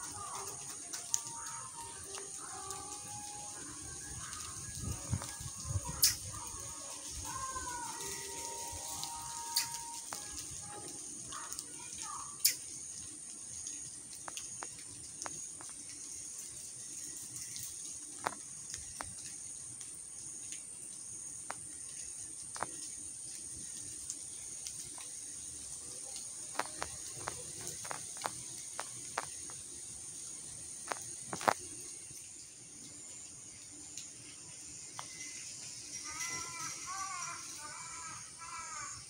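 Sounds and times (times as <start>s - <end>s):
high-pitched insect hum: 0.0s - 39.0s.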